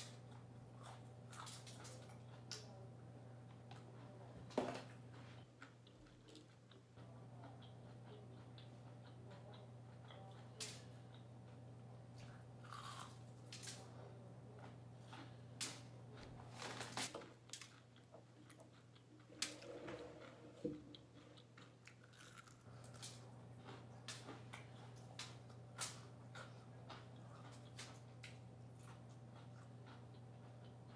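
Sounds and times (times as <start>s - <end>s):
steady low hum: 0.0s - 30.9s
crunching crispy chicken wings: 12.2s - 13.9s, 21.2s - 30.3s.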